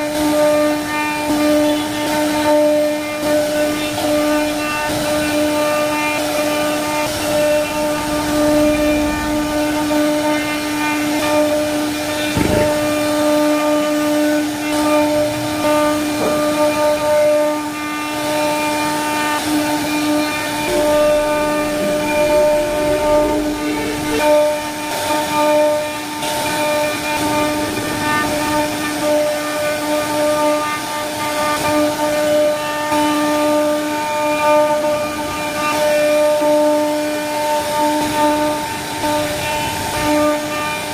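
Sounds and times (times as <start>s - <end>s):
router spindle whine: 0.0s - 40.9s
bit cutting wood: 0.9s - 40.9s
brief thump: 12.4s - 13.0s.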